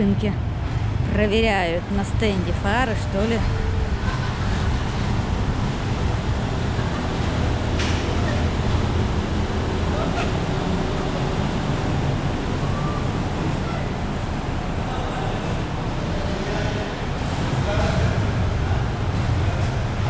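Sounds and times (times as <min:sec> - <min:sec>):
floor fan wind: 0:00.0 - 0:20.0
minibus engine running: 0:00.0 - 0:20.0.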